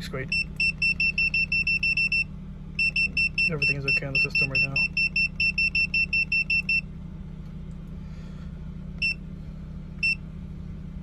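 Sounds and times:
low car hum: 0.0s - 11.0s.

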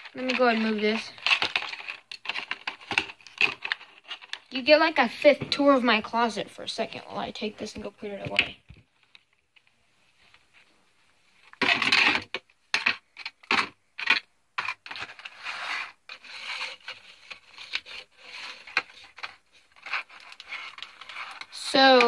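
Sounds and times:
packaging rubbing and scraping: 0.0s - 4.5s, 11.6s - 22.0s.

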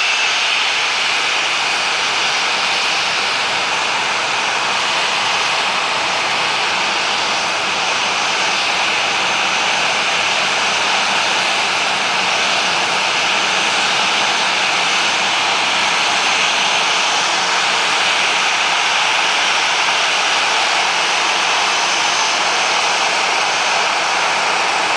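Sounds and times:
jet engines rushing hiss: 0.0s - 24.9s.

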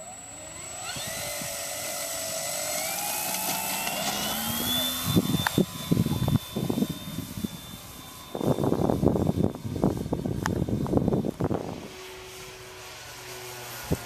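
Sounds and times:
electric motor and propeller whining: 0.0s - 14.0s.

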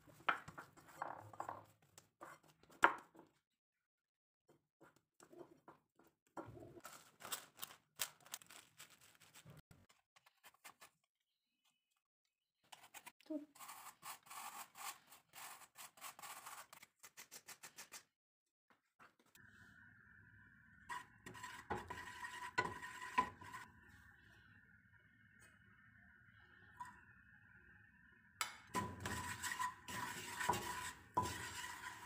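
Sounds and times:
apple grating on grater: 13.5s - 16.7s, 28.8s - 32.0s
hands working dough in bowl: 28.8s - 32.0s.

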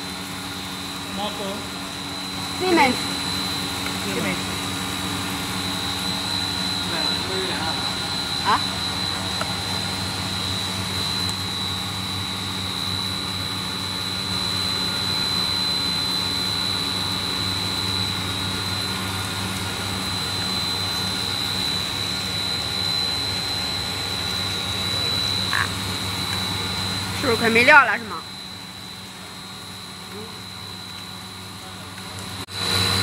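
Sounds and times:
high-pitched whine: 0.0s - 33.0s
machine hum: 0.0s - 33.0s.

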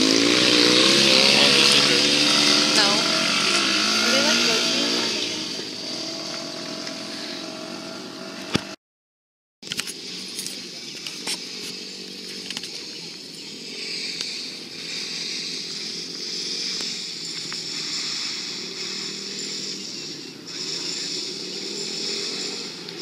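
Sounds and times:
distant dirt bike engine buzzing: 0.0s - 8.8s, 9.6s - 23.0s.

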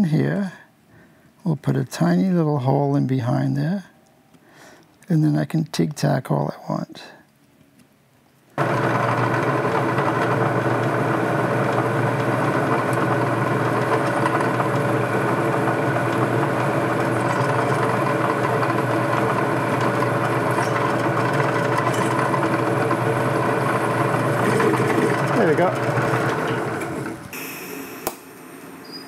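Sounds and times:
drill press drilling steel: 8.6s - 29.0s.

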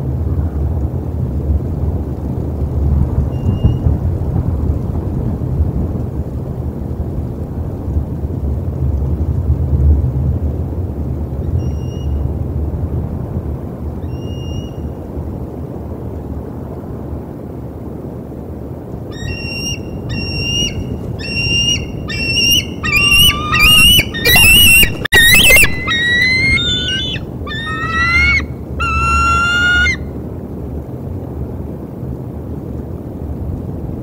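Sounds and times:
eagle calling high piping notes: 19.1s - 30.0s.

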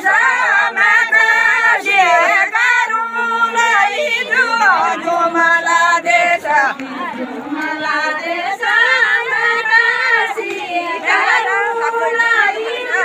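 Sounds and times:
women singing folk song: 0.0s - 13.0s.

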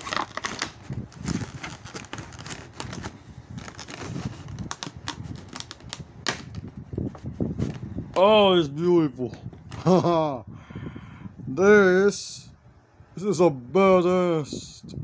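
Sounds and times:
plastic packaging crinkling: 0.0s - 6.8s.

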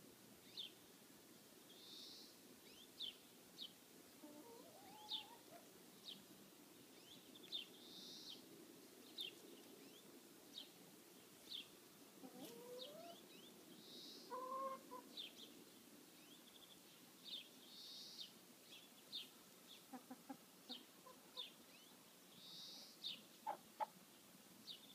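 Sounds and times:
small birds chirping: 0.4s - 0.8s, 1.6s - 24.9s
hens clucking: 4.2s - 5.7s, 12.2s - 13.2s, 14.3s - 15.2s, 19.9s - 21.5s, 23.4s - 24.0s.

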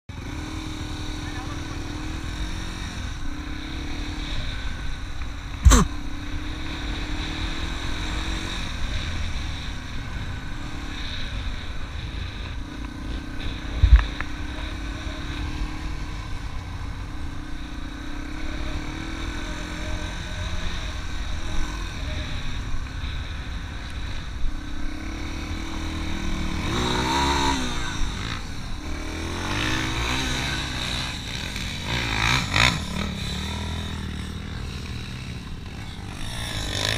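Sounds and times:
dirt bike engine revving: 0.1s - 36.9s
wind rumble on microphone: 8.6s - 17.8s.

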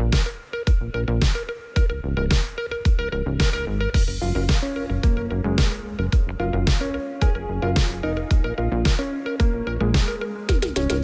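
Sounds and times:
electronic music with kick drum: 0.0s - 11.0s.

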